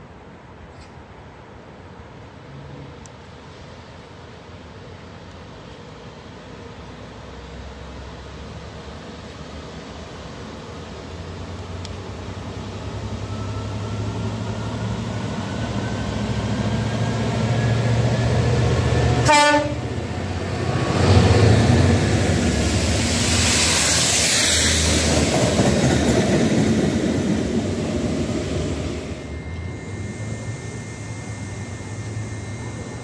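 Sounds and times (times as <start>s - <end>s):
locomotive engine: 11.8s - 33.0s
train horn blast: 19.2s - 20.0s.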